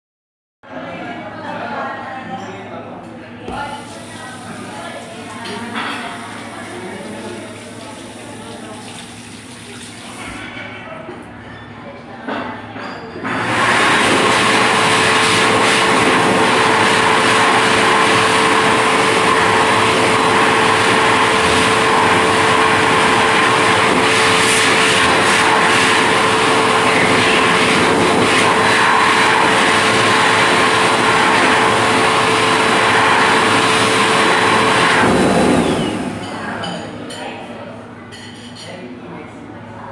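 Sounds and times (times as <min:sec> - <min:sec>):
electric hand dryer blowing: 0:03.5 - 0:10.2, 0:13.3 - 0:36.3.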